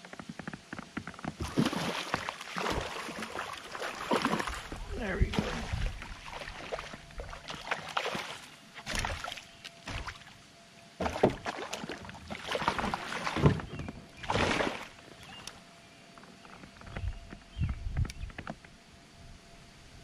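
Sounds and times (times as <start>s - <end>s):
fish splashing in water: 1.4s - 10.3s, 11.0s - 15.0s.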